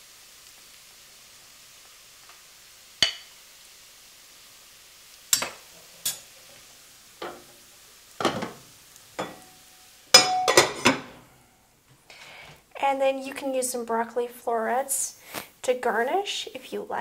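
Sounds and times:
pot lid clattering: 10.1 - 11.1
metal ladle knocking on pot: 10.2 - 11.1.

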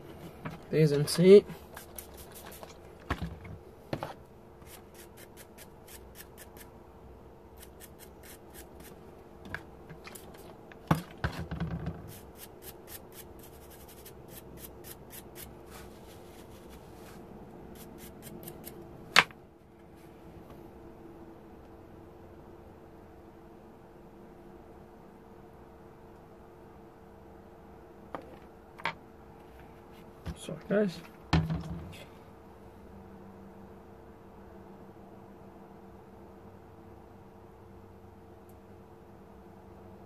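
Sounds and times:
faint steady hum: 0.0 - 40.0
scratchy scrubbing strokes: 1.5 - 2.8, 12.1 - 18.7
knocks on wooden workbench: 31.3 - 31.9.

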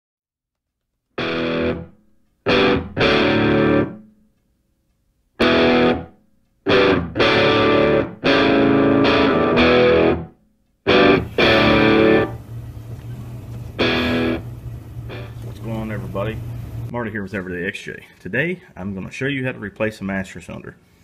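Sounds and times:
distorted electric guitar chords: 1.2 - 4.0, 5.4 - 10.3, 10.9 - 16.9.

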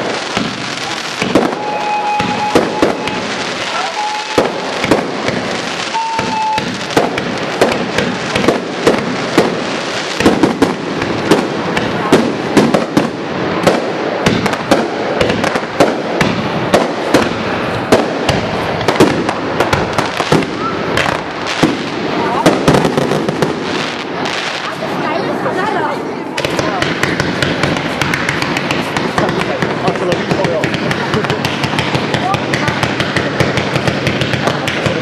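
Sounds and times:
fireworks bursting: 0.0 - 35.0
short steady tone: 6.0 - 6.6.

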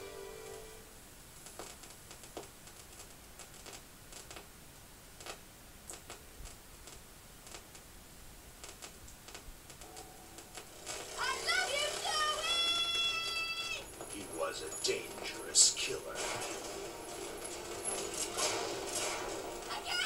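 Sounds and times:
low hiss: 0.0 - 20.0
faint clicks and ticks: 5.2 - 7.9, 8.6 - 11.1.

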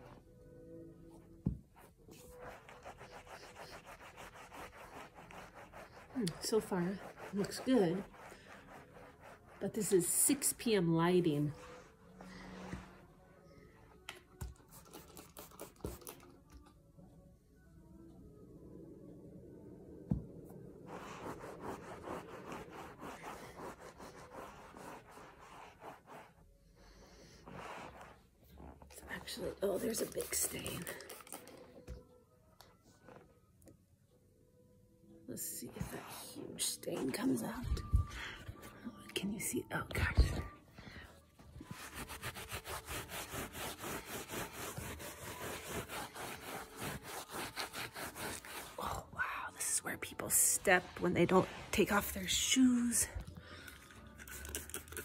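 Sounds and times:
scrubber rubbing on carpet: 2.2 - 10.2, 20.9 - 26.4, 41.7 - 48.8.

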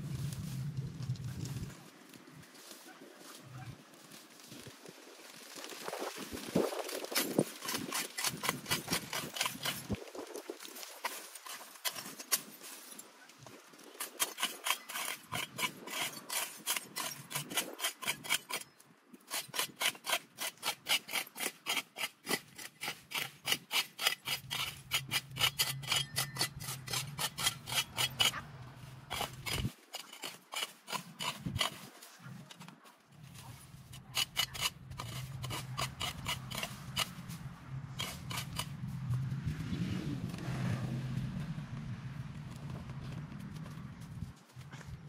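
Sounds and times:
hand tool scraping: 5.8 - 39.0.

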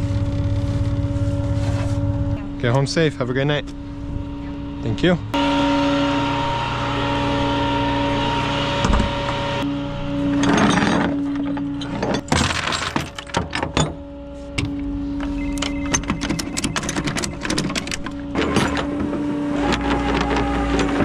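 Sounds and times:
truck engine humming: 0.0 - 12.4, 13.0 - 21.0
chains clanking on steel deck: 10.3 - 14.0, 15.4 - 18.9.

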